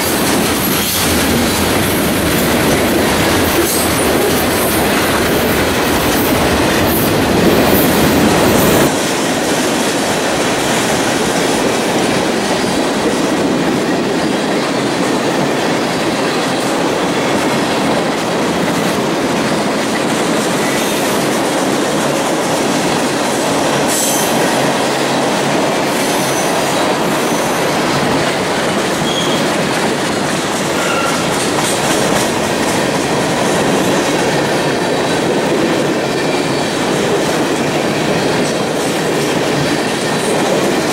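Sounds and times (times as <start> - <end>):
steel wheels rolling on rails: 0.0 - 40.9.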